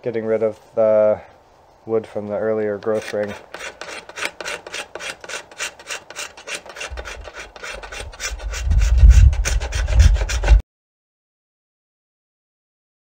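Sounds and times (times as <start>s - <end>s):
hand scraper shaving wood: 2.8s - 10.6s.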